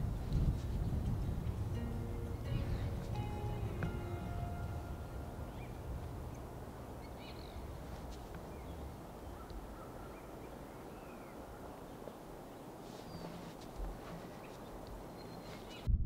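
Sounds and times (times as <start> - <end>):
steady low rumble: 0.0 - 12.5, 15.8 - 16.0
faint bird calls: 2.4 - 13.6, 14.2 - 15.9.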